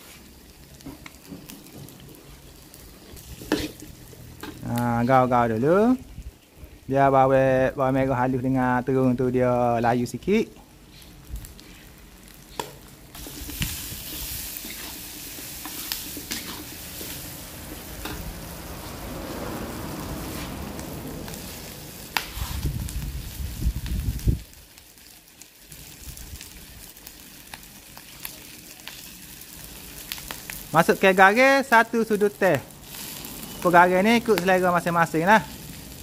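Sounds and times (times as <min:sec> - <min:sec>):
food sizzling in a wok: 0:00.0 - 0:08.6, 0:10.3 - 0:36.0
metal spatula scraping a pan: 0:03.2 - 0:04.6, 0:13.2 - 0:18.3.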